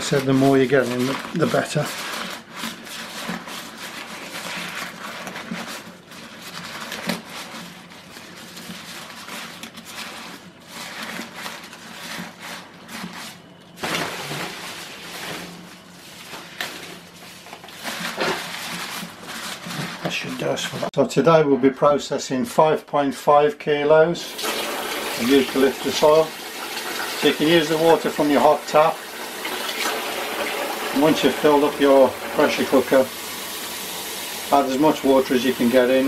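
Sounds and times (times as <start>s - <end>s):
leaves rustling and crunching: 0.0s - 20.9s.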